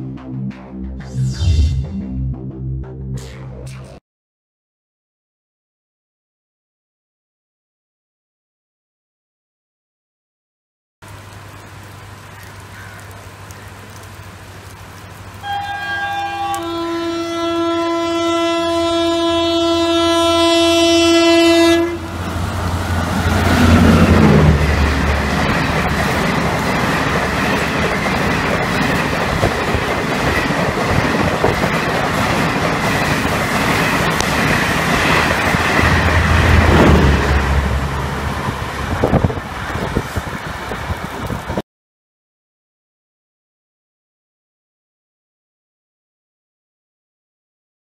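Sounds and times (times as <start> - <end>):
locomotive rumbling past: 13.8 - 41.6
train coaches rushing roar: 15.2 - 41.6
train horn: 15.4 - 22.4
train wheel clatter: 22.9 - 37.4.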